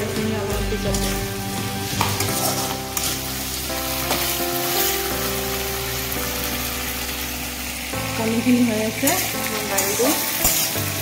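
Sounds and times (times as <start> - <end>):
food sizzling in hot oil: 0.0 - 11.0
spatula stirring in pan: 0.8 - 5.2.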